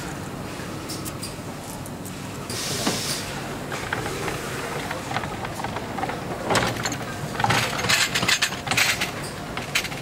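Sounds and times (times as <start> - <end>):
machinery background noise: 0.0 - 10.0
metallic clattering and clicks: 3.7 - 10.0.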